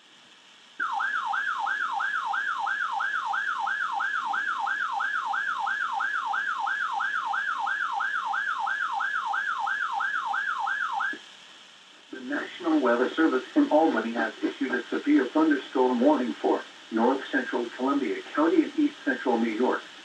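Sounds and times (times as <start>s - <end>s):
warbling siren alarm: 0.8s - 11.3s.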